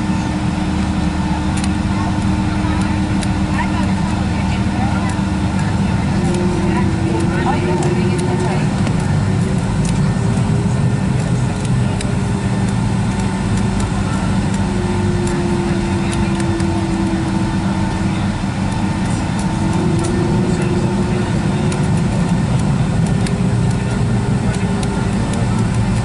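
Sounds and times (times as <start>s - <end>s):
aircraft cabin engine rumble: 0.0s - 26.0s
steady cabin hum: 0.0s - 26.0s.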